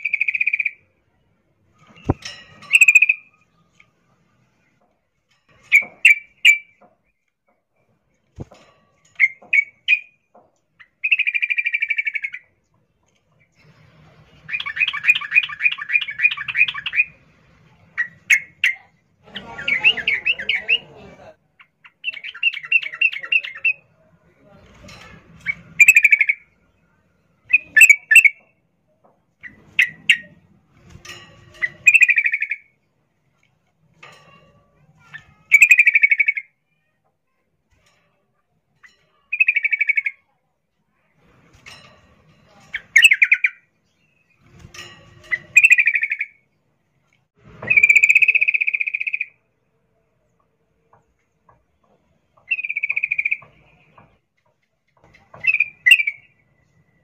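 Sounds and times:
bulbul calling: 0.0s - 0.8s, 2.0s - 3.4s, 10.8s - 12.5s, 14.5s - 17.2s, 25.4s - 26.4s, 27.5s - 28.5s, 31.6s - 32.7s, 35.4s - 36.5s, 38.8s - 40.2s, 42.7s - 43.7s, 45.2s - 46.4s, 47.6s - 49.4s, 52.4s - 54.1s, 55.4s - 56.4s.

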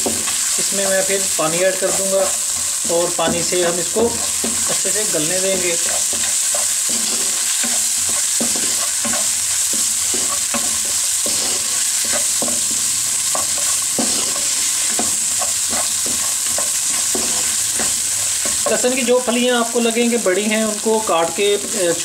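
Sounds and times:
wooden spatula scraping pan: 0.0s - 19.3s
garlic sizzling in hot oil: 0.0s - 22.0s.

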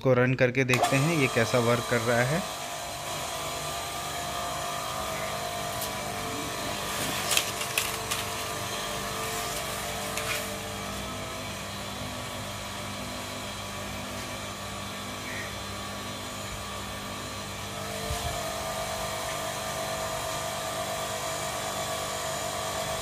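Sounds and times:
pressure washer motor humming: 0.7s - 23.0s.

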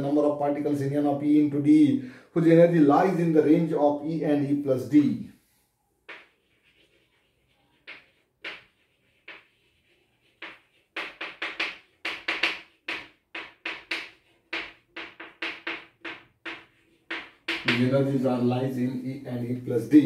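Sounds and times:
chalk writing on blackboard: 6.0s - 17.9s.

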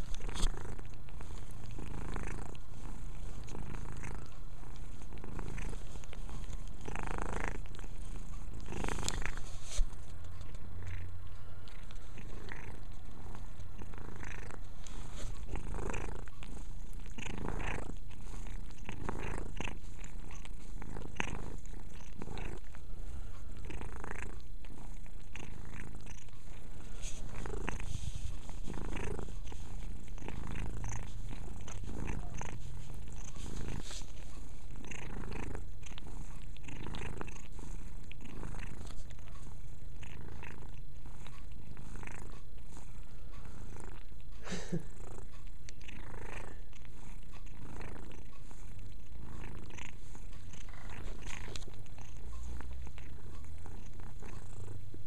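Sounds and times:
cat licking fur: 0.0s - 55.0s
cat purring: 0.0s - 55.0s.

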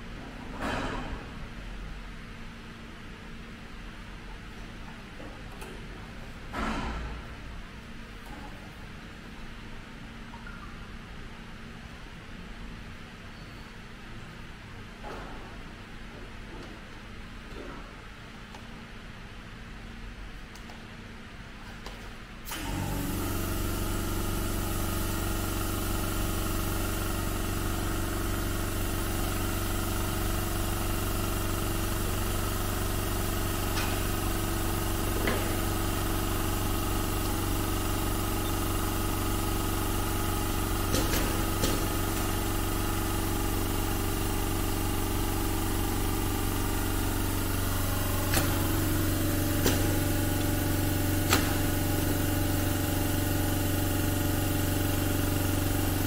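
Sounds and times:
sewing machine motor hum: 22.5s - 56.0s.

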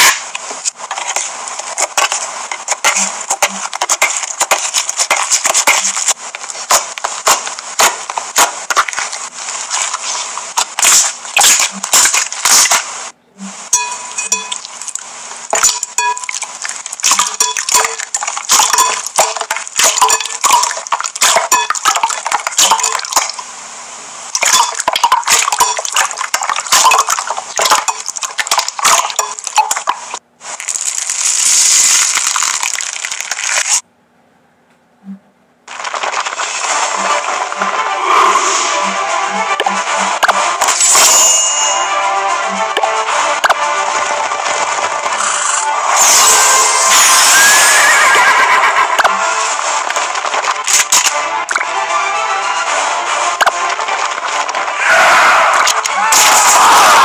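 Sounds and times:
crackling hiss of foam beads: 0.0s - 13.2s, 30.4s - 33.8s, 35.7s - 38.8s, 43.8s - 47.5s
hands squeezing slime: 30.6s - 33.8s.

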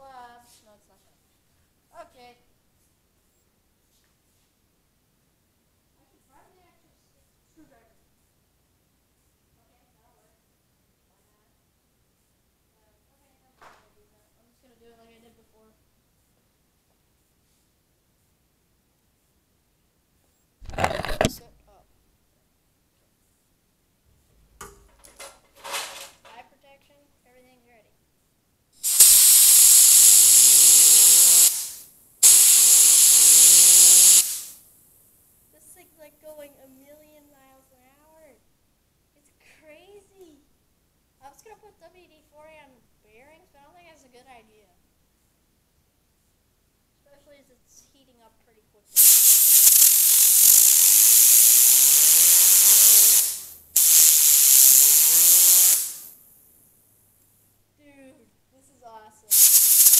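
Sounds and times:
fidget spinner whirring: 20.6s - 21.5s, 28.8s - 34.5s, 49.0s - 56.2s, 59.3s - 59.9s
compressed air blasting hiss: 28.8s - 34.6s, 49.0s - 56.3s, 59.3s - 59.9s.

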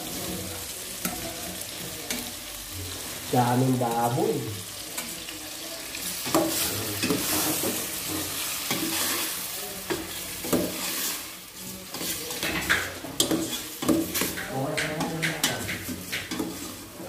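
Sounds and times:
meat and vegetables sizzling: 0.0s - 17.0s
metal spoon scraping a pot: 11.9s - 17.0s.

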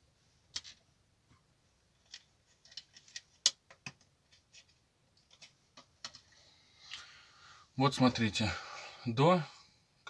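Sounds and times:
hard plastic clicking and tapping: 2.1s - 4.1s.

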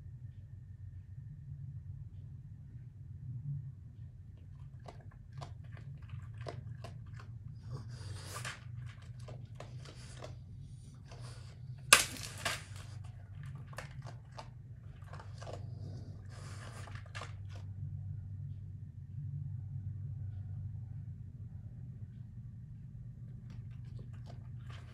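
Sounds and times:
steady low hum: 0.0s - 24.9s
animals chewing food: 4.3s - 17.8s, 23.3s - 24.9s.

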